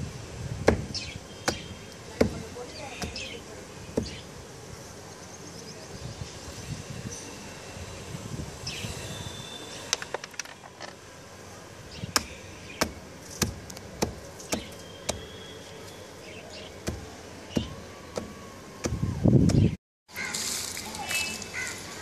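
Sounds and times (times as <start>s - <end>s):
hammer knocking dry clods: 12.2s - 15.3s.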